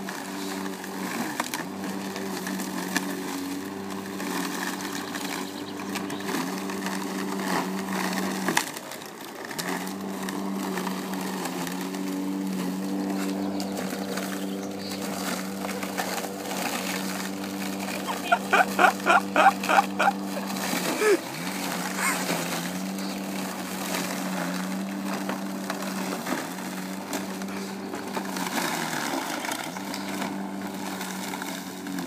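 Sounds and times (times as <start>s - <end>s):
electric lawn mower cutting grass: 0.0s - 32.0s.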